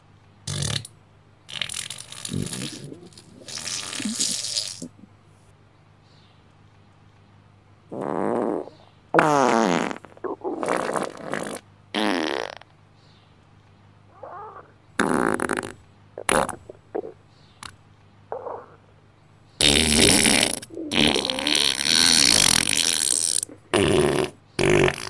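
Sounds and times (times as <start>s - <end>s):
loud farts: 0.5s - 0.9s, 1.5s - 5.1s, 7.9s - 12.7s, 15.0s - 17.2s, 19.6s - 25.0s.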